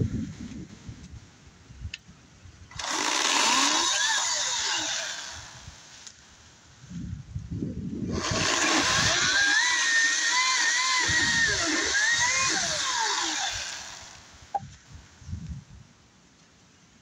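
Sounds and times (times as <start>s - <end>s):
electric chainsaw cutting log: 2.7s - 5.9s, 8.1s - 14.4s.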